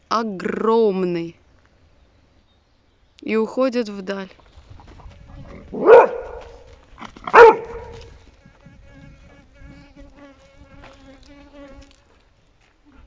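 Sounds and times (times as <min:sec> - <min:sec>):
flying insect buzzing: 0:04.6 - 0:13.0
dog barking: 0:05.7 - 0:06.7, 0:07.3 - 0:08.0.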